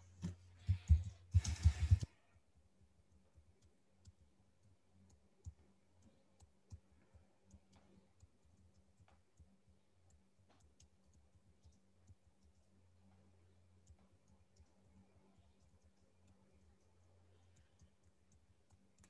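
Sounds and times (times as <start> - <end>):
low steady hum: 0.0 - 19.0
keyboard and mouse clicks: 0.2 - 2.1, 13.8 - 19.0.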